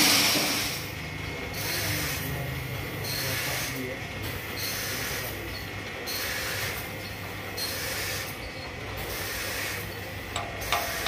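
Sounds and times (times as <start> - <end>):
sawmill drive hum: 9.4 - 11.0
saw blade hiss: 10.6 - 11.0.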